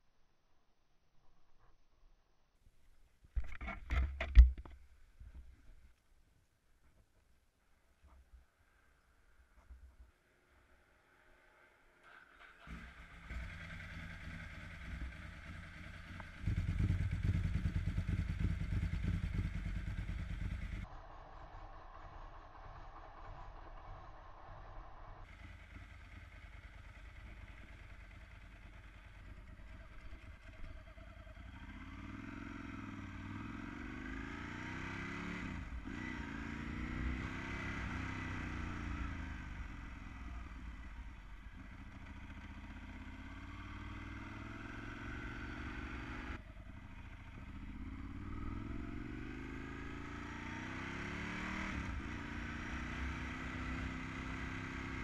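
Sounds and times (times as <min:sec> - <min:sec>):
motorcycle engine accelerating: 0:11.0 - 0:55.0.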